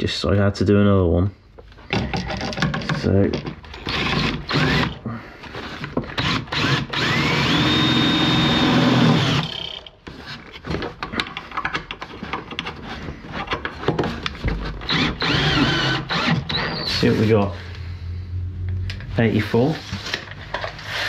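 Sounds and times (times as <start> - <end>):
handling clicks and knocks: 1.8 - 3.8, 10.6 - 12.8
cordless drill whining: 3.8 - 5.0, 5.6 - 9.9, 14.8 - 17.2.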